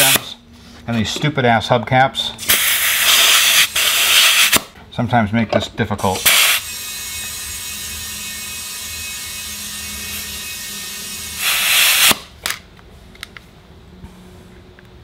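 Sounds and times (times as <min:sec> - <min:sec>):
compressed air hissing: 0:02.4 - 0:04.6, 0:06.2 - 0:06.7, 0:11.2 - 0:12.2.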